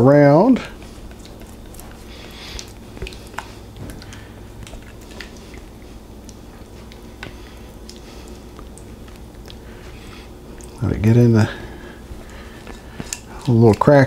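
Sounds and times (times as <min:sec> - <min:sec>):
wet squishing of sauce: 0:00.6 - 0:14.0.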